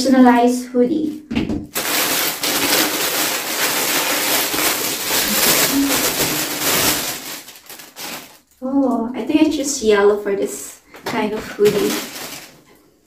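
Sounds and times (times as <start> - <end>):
plastic bag crinkling: 1.7 - 8.6, 10.9 - 13.0.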